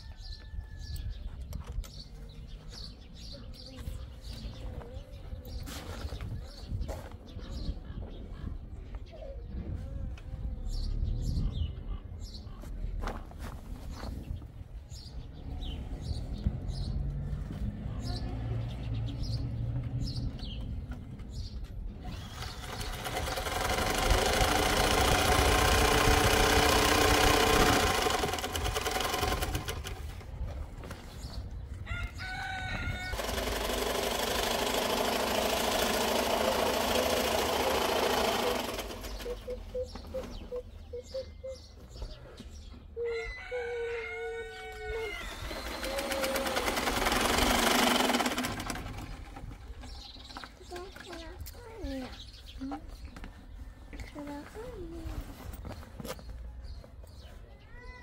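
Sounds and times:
rooster crowing: 0.0 - 1.1, 31.8 - 33.3, 43.0 - 45.6
electric sewing machine running: 22.0 - 30.3, 33.0 - 39.6, 45.3 - 50.4.

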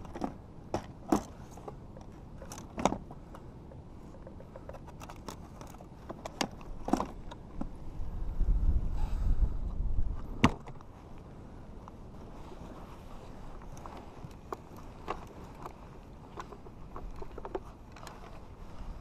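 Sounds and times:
plastic gear clattering: 13.6 - 18.4.

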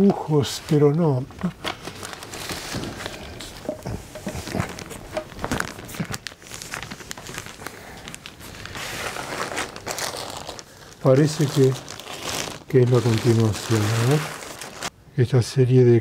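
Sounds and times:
plastic bag crinkling: 1.4 - 14.9
handling clicks and knocks: 3.6 - 5.6.

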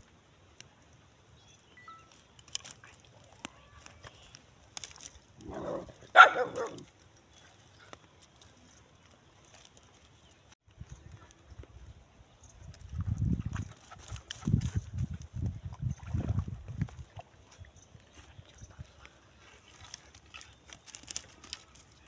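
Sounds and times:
dry twigs snapping: 2.1 - 5.8, 6.5 - 10.3, 19.0 - 22.0
dog barking: 5.5 - 6.8.

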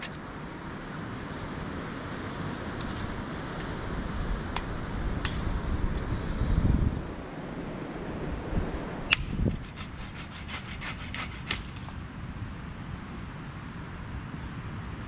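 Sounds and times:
sharp click: 9.1 - 9.4
hand saw cutting wood: 9.1 - 12.0.

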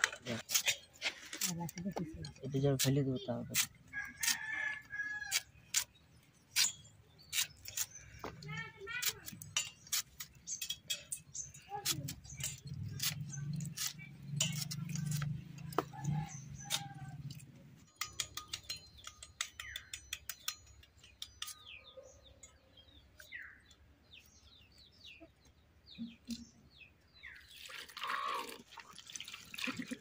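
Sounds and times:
birds chirping: 0.0 - 28.6
water sloshing in a metal bowl: 9.3 - 17.5, 27.4 - 30.0.

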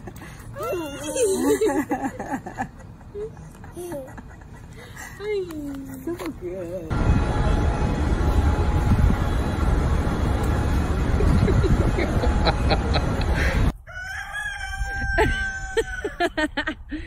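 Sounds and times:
low wind rumble on microphone: 6.9 - 13.8
rooster crowing: 13.8 - 16.4.

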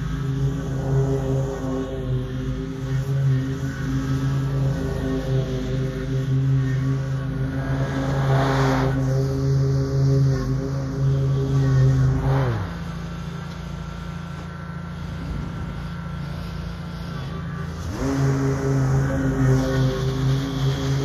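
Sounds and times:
mower engine revving and idling: 0.0 - 21.0.

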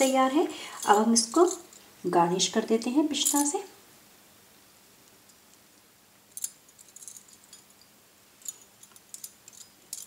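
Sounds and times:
metal bangles jingling: 0.0 - 1.9, 3.2 - 3.6, 6.3 - 10.0.

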